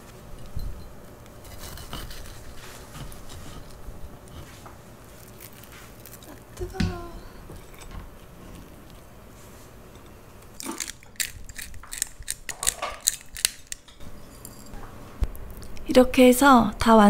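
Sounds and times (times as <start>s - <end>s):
pepper mill grinding clicks: 10.6s - 14.0s.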